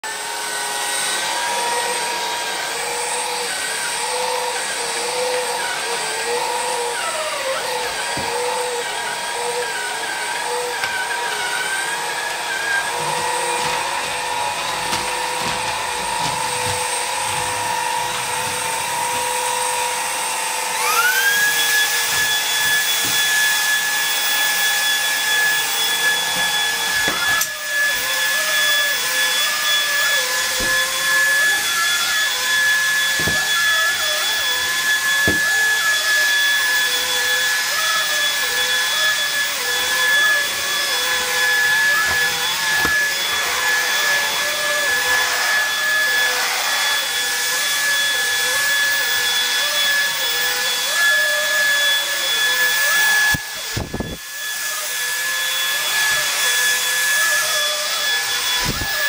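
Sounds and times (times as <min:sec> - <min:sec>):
vacuum motor whine: 0:00.1 - 0:59.0.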